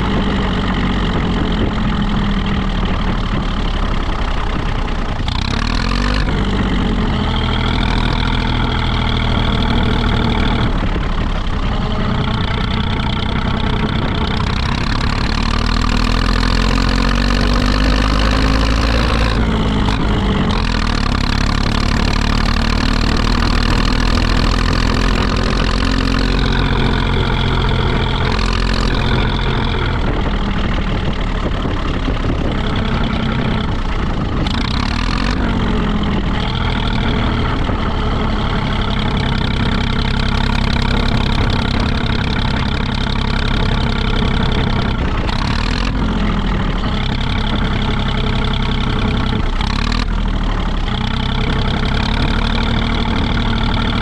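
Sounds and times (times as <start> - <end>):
tractor diesel engine running: 0.0 - 54.0.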